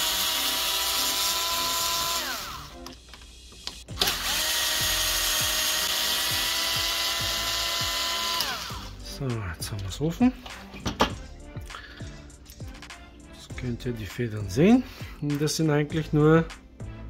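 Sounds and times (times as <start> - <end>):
cordless drill running: 0.0 - 2.8, 3.6 - 8.9.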